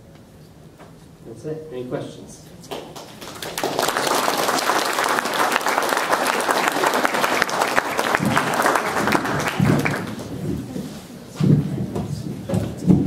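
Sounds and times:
audience applauding: 2.7s - 10.4s.

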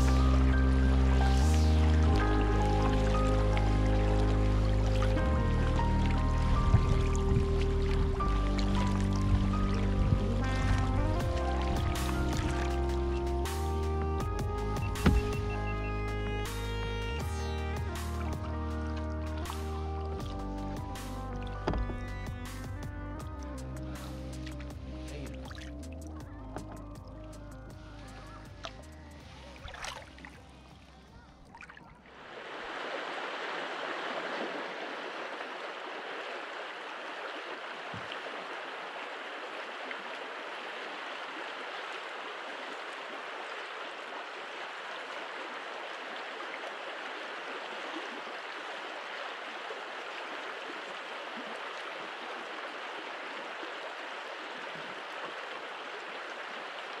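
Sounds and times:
river water rushing: 32.1s - 57.0s.

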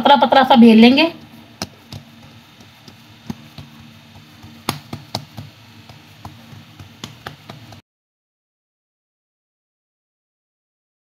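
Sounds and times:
hands patting dough: 1.0s - 7.8s.

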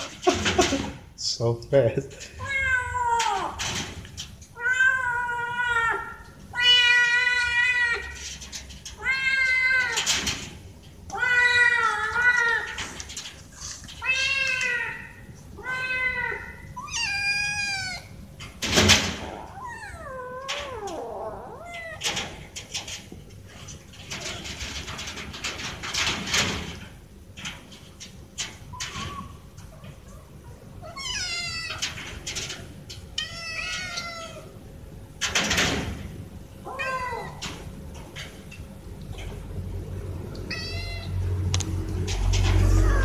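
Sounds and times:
cat meowing: 4.6s - 8.1s, 14.0s - 18.2s, 19.3s - 22.0s, 30.8s - 31.8s, 36.6s - 37.4s, 40.4s - 41.2s.

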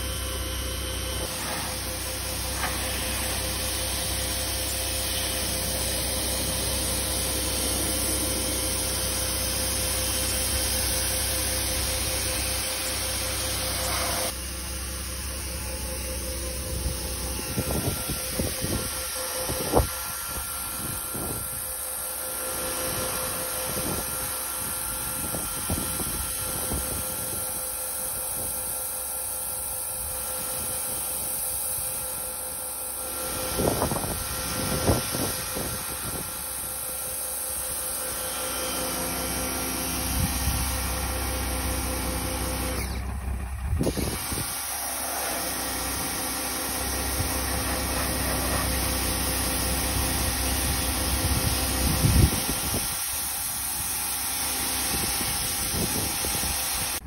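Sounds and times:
deep rumble: 0.0s - 21.6s
pressure washer engine running: 0.0s - 57.0s.

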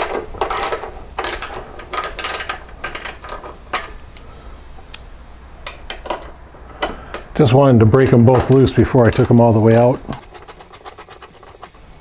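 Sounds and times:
ratchet wrench clicking: 0.0s - 2.6s, 9.1s - 11.8s.

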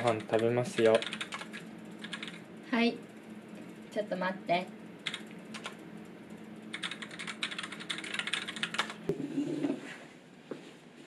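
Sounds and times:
fast keyboard typing: 0.0s - 2.4s, 5.0s - 5.8s, 6.7s - 9.0s.

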